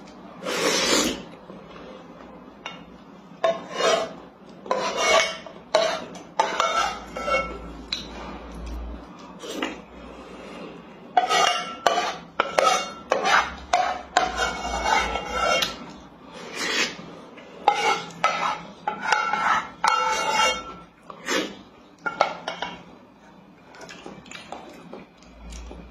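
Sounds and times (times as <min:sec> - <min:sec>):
wooden spoon scraping metal pot: 0:03.4 - 0:07.7, 0:11.2 - 0:22.7.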